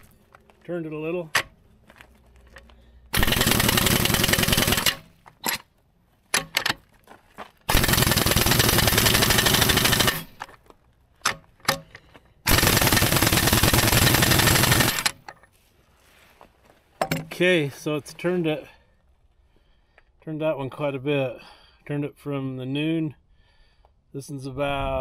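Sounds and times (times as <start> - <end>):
pneumatic impact wrench hammering: 3.1 - 5.6, 7.7 - 10.5, 11.2 - 15.3
tool and socket clanking: 17.0 - 17.4.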